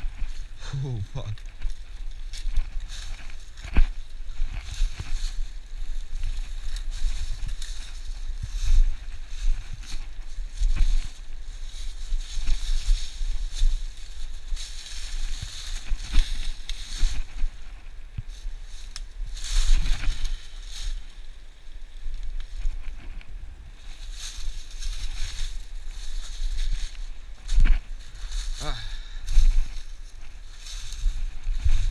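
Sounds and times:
footsteps crunching through leaves: 0:00.0 - 0:31.9
wind buffeting microphone: 0:22.4 - 0:31.9.

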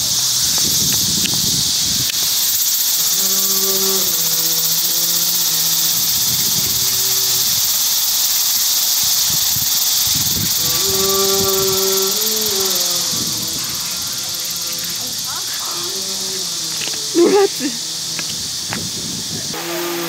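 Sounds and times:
steady high hiss: 0:00.0 - 0:20.0
low wordless humming: 0:10.1 - 0:20.0.

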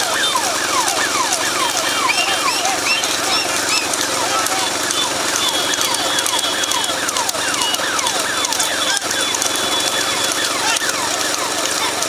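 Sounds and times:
vehicle engines running: 0:00.0 - 0:12.0
falling whistle-like tones: 0:00.4 - 0:11.6.

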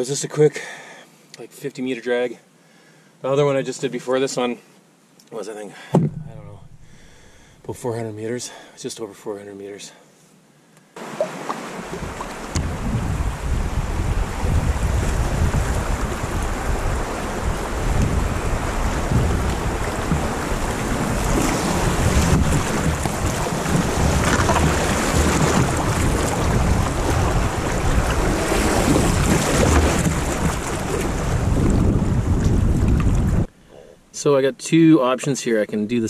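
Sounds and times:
water rushing along canoe: 0:06.0 - 0:07.6, 0:11.0 - 0:33.5
wind buffeting microphone: 0:11.8 - 0:33.5.

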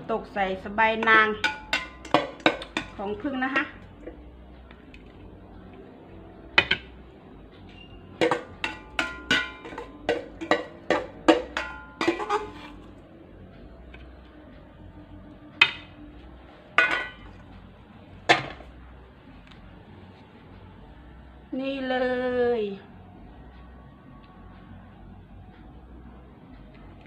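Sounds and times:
metal spoon clinking on dishes: 0:01.0 - 0:03.8, 0:07.8 - 0:12.9, 0:16.8 - 0:17.4.

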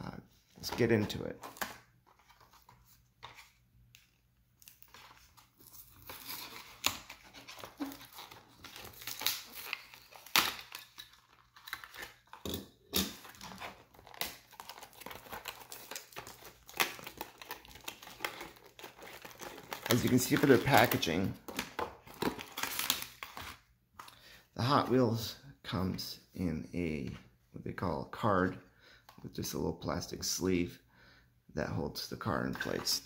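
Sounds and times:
plastic packaging crackling: 0:04.6 - 0:23.6.

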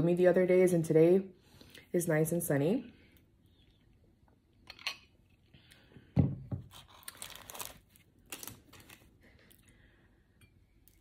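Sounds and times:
paper wrapper crinkling: 0:06.7 - 0:09.3.

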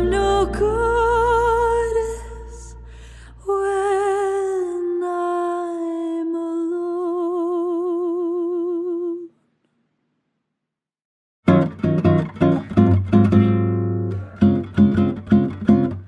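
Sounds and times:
woman singing a long note: 0:00.0 - 0:09.3.

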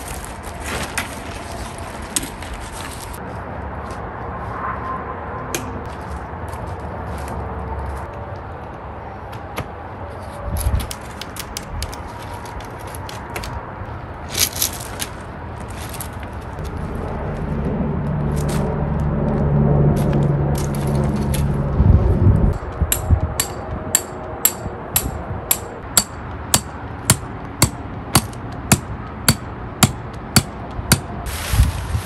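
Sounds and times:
tent pole clips clicking and rattling: 0:10.5 - 0:13.6
low steady rumble: 0:15.8 - 0:32.0.

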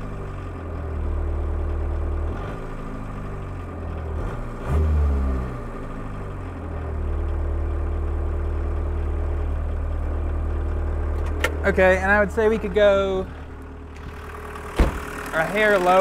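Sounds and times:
diesel engine idling: 0:05.8 - 0:16.0.

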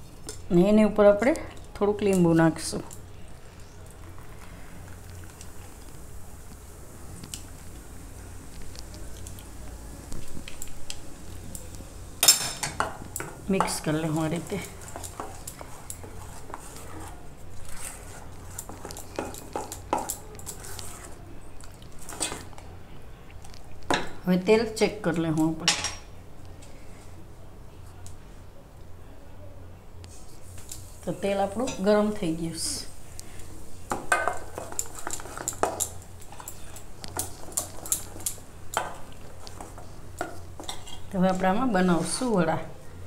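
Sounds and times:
spoon stirring thick batter: 0:12.8 - 0:22.6, 0:33.2 - 0:42.2.

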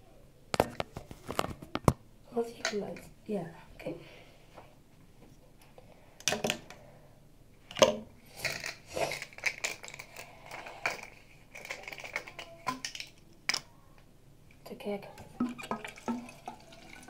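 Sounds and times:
plastic bottle clicks and knocks: 0:15.4 - 0:16.2.

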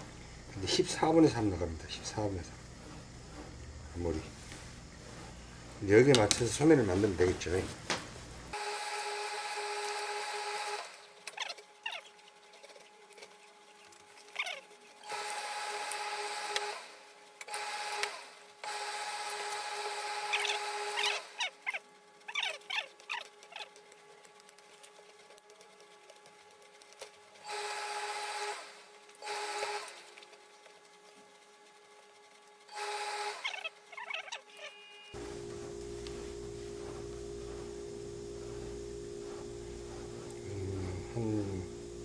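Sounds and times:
steady hum: 0:00.0 - 0:10.1, 0:35.0 - 0:42.0
steam iron hissing: 0:35.2 - 0:42.0.

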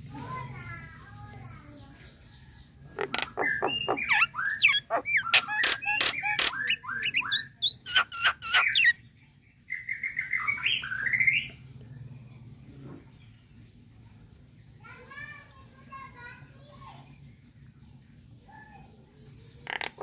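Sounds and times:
myna calling: 0:02.9 - 0:09.0.

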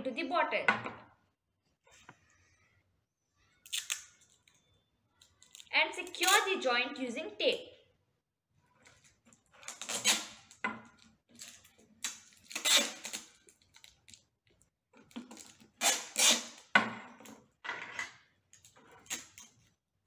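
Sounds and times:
adhesive tape pulled off roll: 0:09.7 - 0:10.5, 0:12.0 - 0:13.4, 0:15.8 - 0:16.7.

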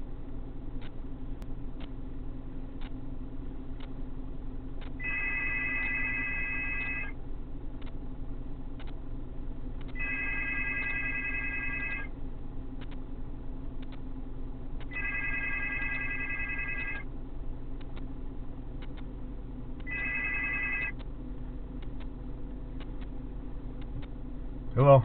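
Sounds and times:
steady low hum: 0:00.0 - 0:25.0
telephone ringing tone: 0:05.0 - 0:07.2, 0:10.0 - 0:12.1, 0:14.9 - 0:17.1, 0:19.9 - 0:21.0.

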